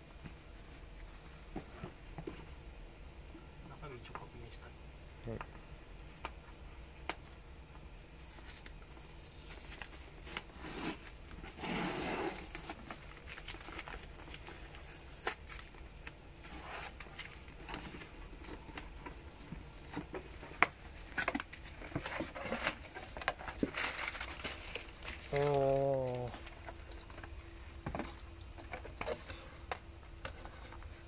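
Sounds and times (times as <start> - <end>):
packing tape tearing: 9.3 - 18.6, 21.0 - 26.5
cardboard scraping: 9.5 - 15.2, 21.0 - 26.5.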